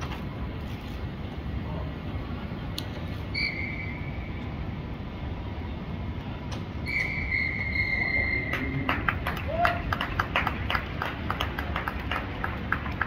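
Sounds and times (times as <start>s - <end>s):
referee's whistle blast: 6.8s - 8.7s.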